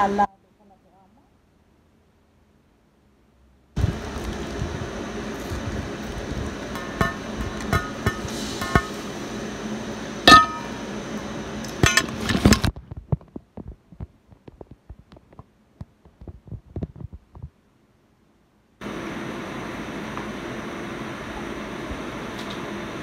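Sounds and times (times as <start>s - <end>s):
steady hiss: 1.6s - 12.4s.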